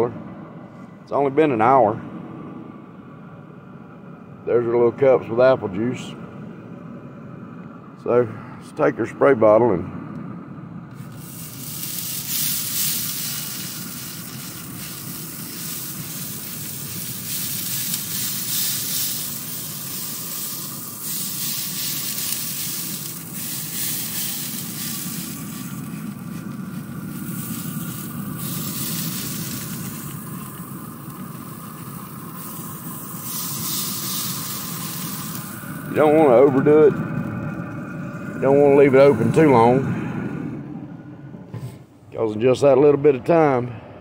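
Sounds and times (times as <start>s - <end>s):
steady low hum: 0.0s - 44.0s
spray bottle hissing: 10.9s - 35.9s.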